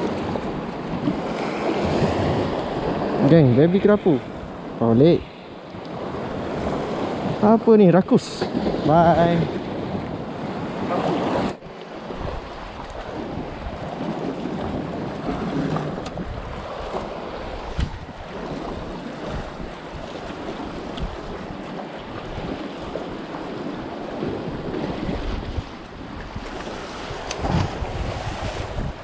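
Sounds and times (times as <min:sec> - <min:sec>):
rumbling water wash: 0:00.0 - 0:29.0
wind buffeting microphone: 0:08.4 - 0:29.0.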